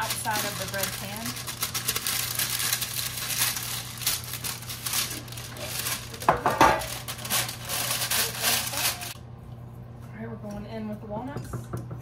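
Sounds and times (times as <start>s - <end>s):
parchment paper crinkling: 0.0s - 9.2s.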